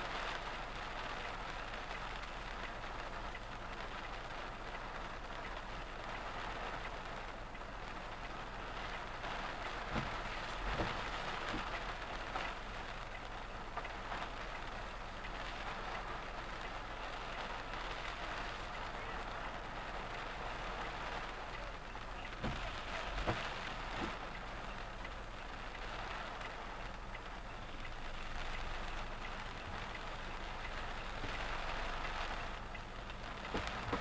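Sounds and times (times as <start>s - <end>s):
car engine and road hum: 0.0s - 34.0s
rain pattering on a car: 0.0s - 34.0s.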